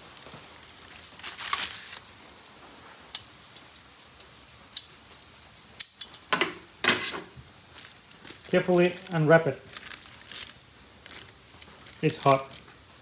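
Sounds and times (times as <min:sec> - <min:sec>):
aluminium foil crinkling: 0:00.0 - 0:02.4, 0:06.9 - 0:13.0.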